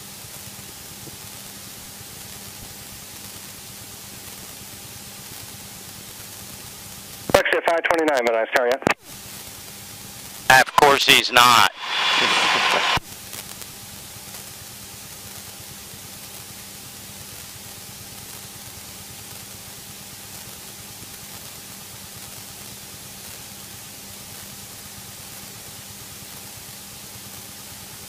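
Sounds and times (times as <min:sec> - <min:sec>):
headset intercom hiss: 0:07.3 - 0:09.0, 0:10.5 - 0:13.0.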